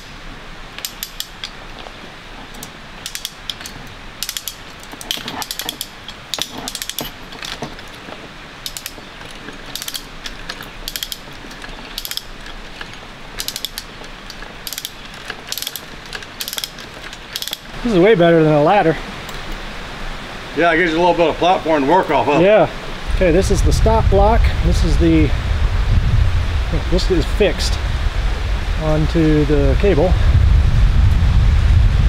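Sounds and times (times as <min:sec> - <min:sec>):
ratchet pawl clicking: 0:00.8 - 0:01.6, 0:02.6 - 0:07.6, 0:08.6 - 0:09.0, 0:09.7 - 0:17.7.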